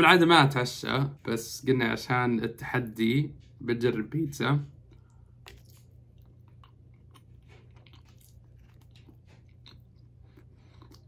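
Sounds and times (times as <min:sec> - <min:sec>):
steady low hum: 0:00.0 - 0:11.0
person chewing pizza crust: 0:04.7 - 0:11.0.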